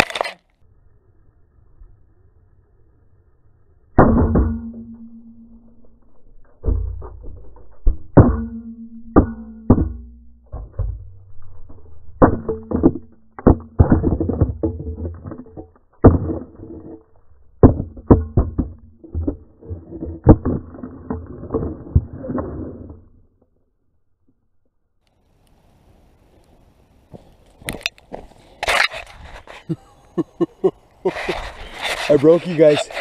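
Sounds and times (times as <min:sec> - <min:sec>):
low steady tone: 0:00.6 - 0:15.8.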